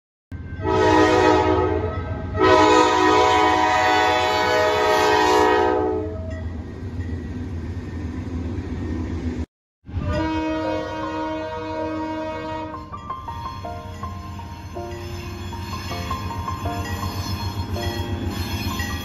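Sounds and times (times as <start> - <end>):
locomotive air horn: 0.4 - 6.3, 9.9 - 13.0
train rumbling past: 0.4 - 19.0.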